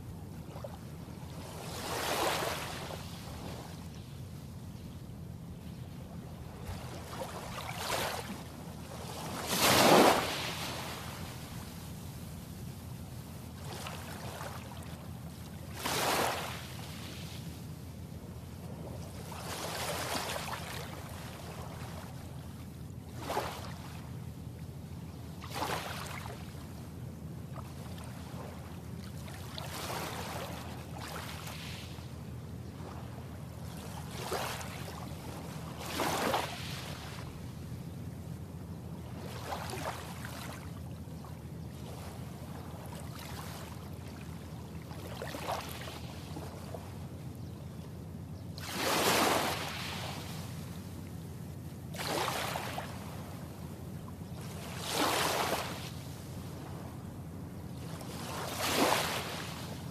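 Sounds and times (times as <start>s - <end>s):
steady low hum: 2.5s - 48.7s, 49.5s - 54.8s, 55.7s - 58.4s
gentle waves washing on shore: 6.4s - 12.4s, 13.5s - 17.7s, 33.6s - 37.4s, 48.6s - 50.6s, 51.9s - 53.4s, 54.4s - 57.0s, 57.9s - 59.9s.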